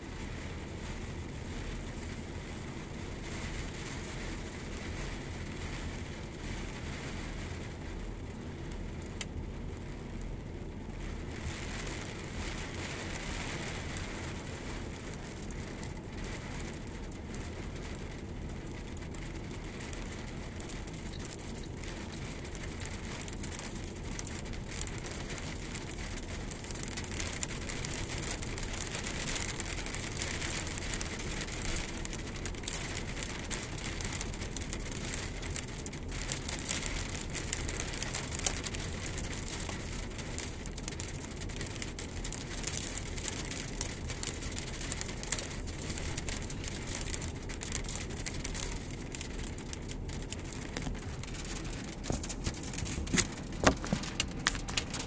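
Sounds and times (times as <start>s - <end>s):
heavy rain on puddles: 0.0s - 55.0s
low rumble: 48.2s - 55.0s
crackling drop hits: 49.4s - 55.0s.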